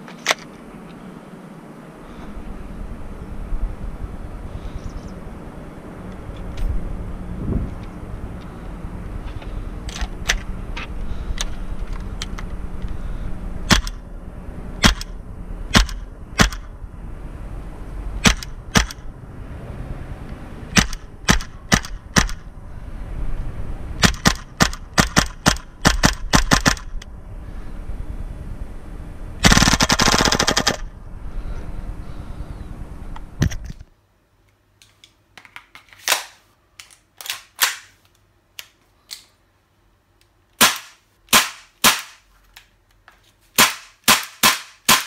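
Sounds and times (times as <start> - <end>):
airsoft gun single shots: 14.8 - 15.1, 15.7 - 16.7
airsoft gun full-auto burst: 24.0 - 26.9, 29.4 - 30.9.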